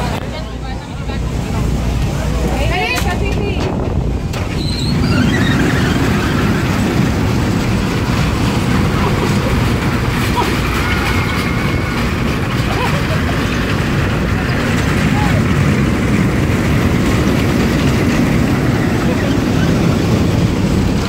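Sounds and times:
roller coaster cars rumbling on rails: 0.0 - 21.0
wind buffeting microphone: 0.0 - 21.0.

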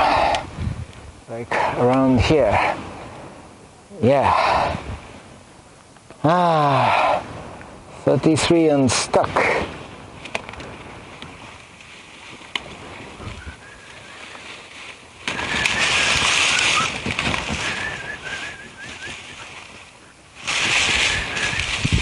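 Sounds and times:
faint wavering whistle: 13.2 - 14.2, 15.4 - 17.0, 17.6 - 20.1
rustling: 13.7 - 22.0.

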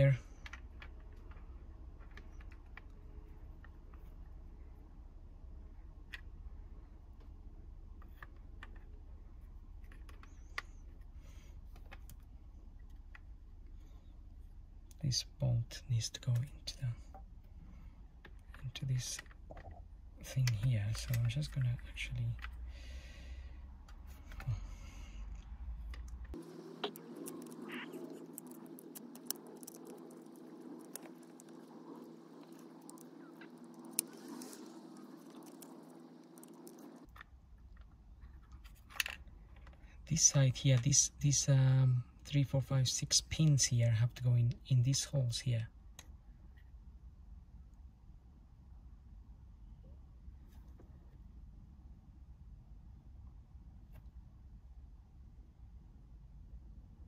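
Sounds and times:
low steady hum: 0.0 - 57.0.

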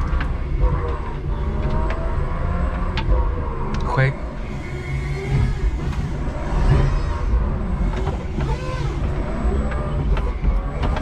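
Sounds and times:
forklift motor whining: 0.0 - 11.0
low rumble: 0.0 - 11.0
sharp clicks and knocks: 7.8 - 11.0.

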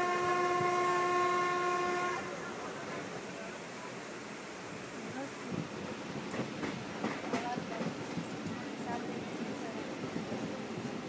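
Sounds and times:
train horn: 0.0 - 2.5
train rumble on rails: 0.0 - 11.0.

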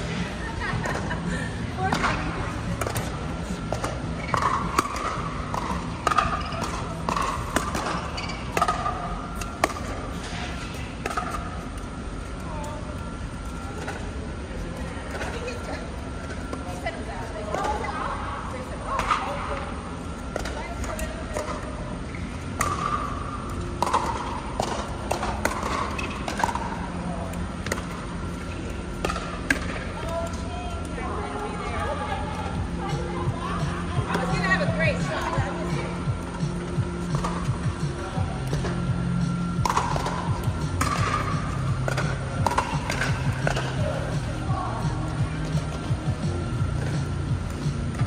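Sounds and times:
ball bouncing on hard court: 1.8 - 10.0, 39.6 - 44.0
sneakers squeaking on court: 6.3 - 8.8.

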